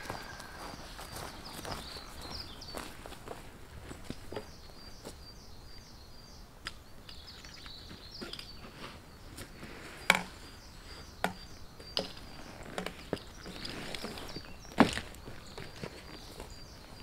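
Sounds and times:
bird chirping: 0:00.0 - 0:03.4, 0:04.1 - 0:17.0
footsteps on a mountain trail: 0:00.0 - 0:05.3, 0:11.0 - 0:17.0.

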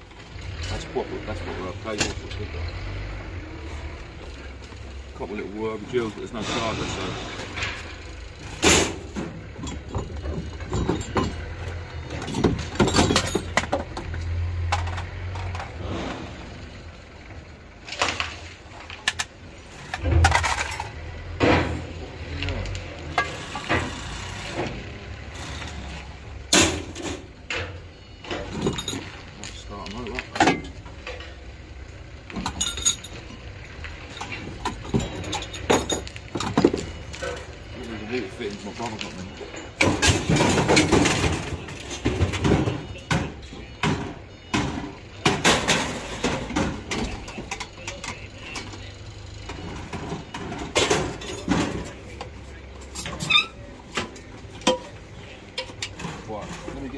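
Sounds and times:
scrap metal clanking: 0:05.2 - 0:16.7, 0:17.8 - 0:22.0.

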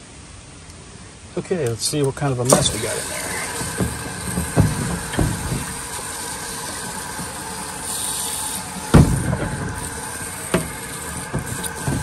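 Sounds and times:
water rushing through hose wand: 0:02.4 - 0:12.0.

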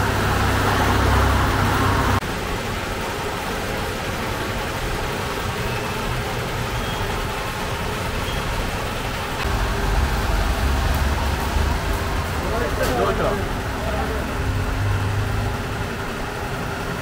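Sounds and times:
street traffic noise: 0:00.0 - 0:17.0
loud low hum: 0:09.4 - 0:16.8.

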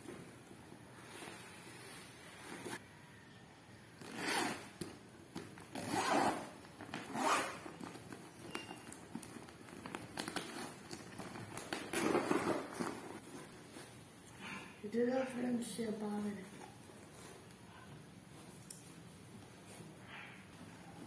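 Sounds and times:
zipper on plastic bag: 0:04.0 - 0:04.8, 0:05.6 - 0:08.8.

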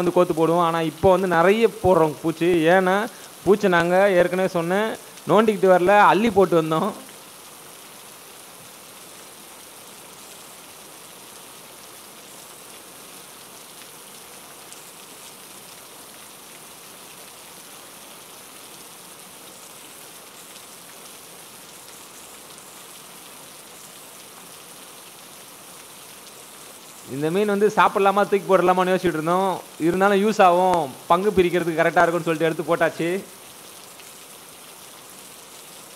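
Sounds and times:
heavy rain hissing: 0:00.0 - 0:35.9
raindrop ticks: 0:30.7 - 0:31.6.

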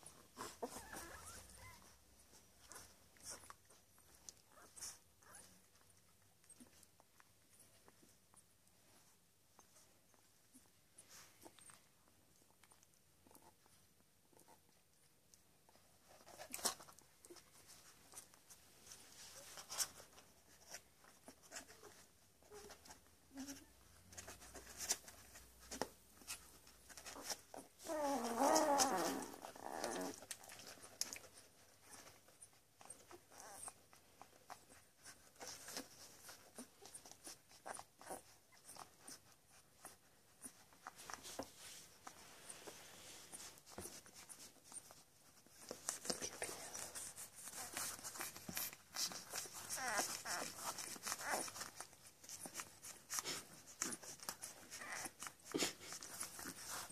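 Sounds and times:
puppy whining cry: 0:00.0 - 0:02.0, 0:26.9 - 0:41.5, 0:45.6 - 0:56.9
puppies suckling: 0:00.0 - 0:56.9.

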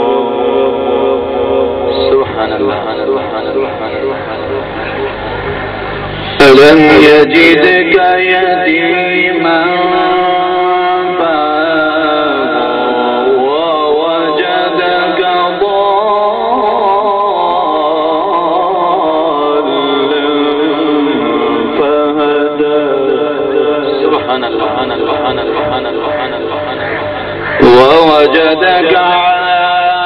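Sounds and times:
solo voice chanting: 0:06.3 - 0:30.0.

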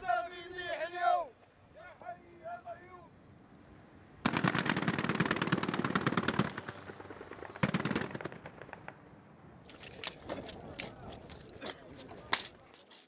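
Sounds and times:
machine-gun bursts: 0:04.3 - 0:08.4.

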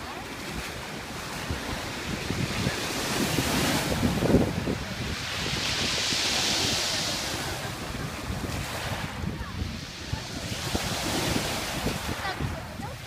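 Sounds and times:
waves washing up pebble beach: 0:00.0 - 0:13.0
wind buffeting microphone: 0:00.0 - 0:13.0.

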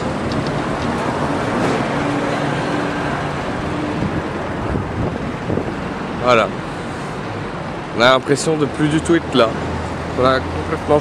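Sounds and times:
street traffic: 0:00.0 - 0:11.0
wind on microphone: 0:03.1 - 0:05.9.

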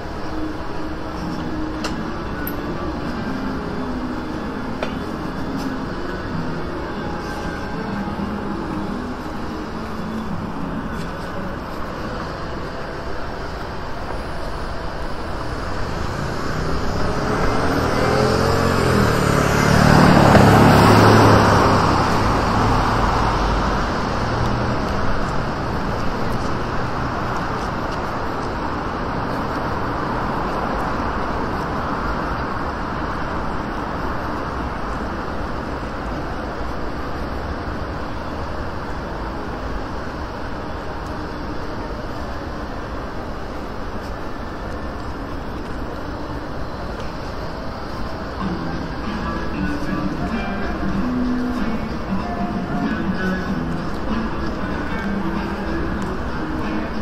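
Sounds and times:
city street traffic: 0:00.0 - 0:57.0
vehicle passing close by: 0:15.6 - 0:27.8.

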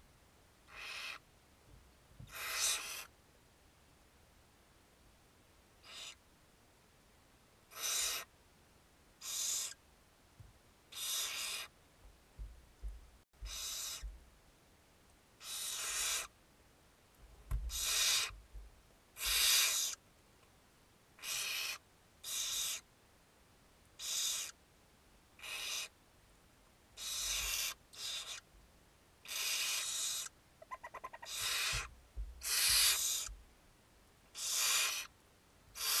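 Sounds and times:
owl chicks hissing: 0:00.7 - 0:01.2, 0:02.3 - 0:03.1, 0:05.8 - 0:06.2, 0:07.7 - 0:08.3, 0:09.2 - 0:09.8, 0:10.9 - 0:11.7, 0:13.4 - 0:14.1, 0:15.4 - 0:16.3, 0:17.7 - 0:18.4, 0:19.2 - 0:20.0, 0:21.2 - 0:22.8, 0:24.0 - 0:24.6, 0:25.4 - 0:25.9, 0:27.0 - 0:28.4, 0:29.2 - 0:33.3, 0:34.3 - 0:35.1, 0:35.8 - 0:36.0
soft low thumps: 0:12.0 - 0:14.4, 0:17.2 - 0:18.8, 0:31.4 - 0:33.5.

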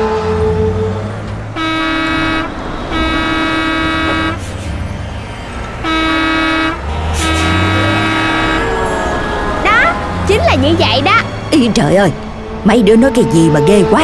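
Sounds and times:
car horns honking: 0:00.0 - 0:11.1
low traffic rumble: 0:00.0 - 0:14.0.

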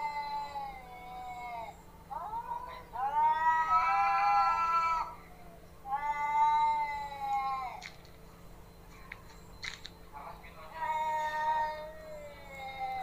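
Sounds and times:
cats yowling: 0:00.0 - 0:08.0, 0:10.7 - 0:13.0.

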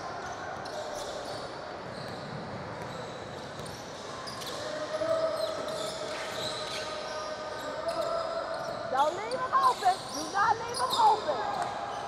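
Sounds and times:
echoing voices and calls: 0:04.0 - 0:12.0.

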